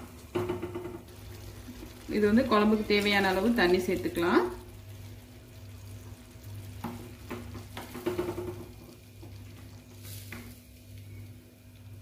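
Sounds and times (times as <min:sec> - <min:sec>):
spoon knocking against pot: 0:06.8 - 0:08.8.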